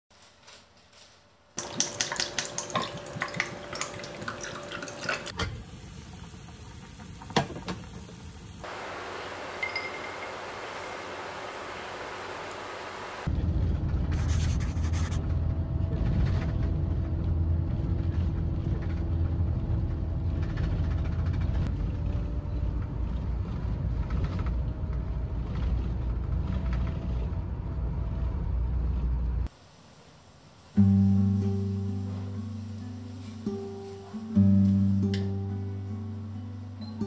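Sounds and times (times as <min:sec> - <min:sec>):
vehicle engine and road rumble: 0:10.1 - 0:29.5
acoustic guitar music: 0:30.8 - 0:37.0.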